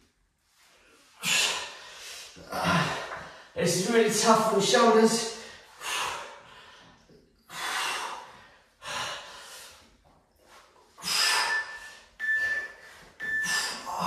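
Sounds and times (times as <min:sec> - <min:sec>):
man breathing hard: 0:01.2 - 0:03.6, 0:05.3 - 0:10.0, 0:10.9 - 0:14.0.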